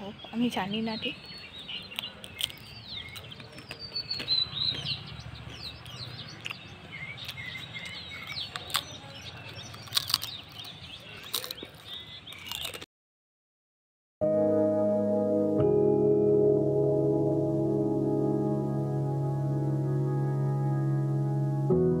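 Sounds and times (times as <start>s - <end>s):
small birds chirping: 0.0s - 12.9s
potato chips crunching: 1.6s - 12.9s.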